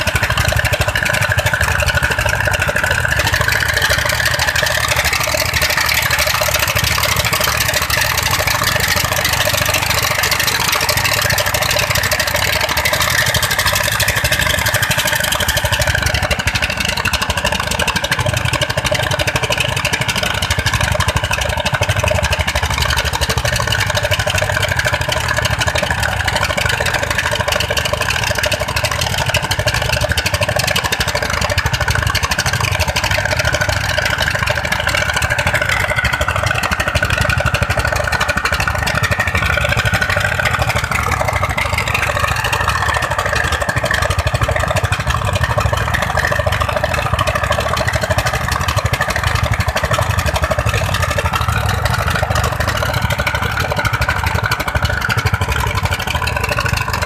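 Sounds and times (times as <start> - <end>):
diesel engines running: 0.0 - 57.0.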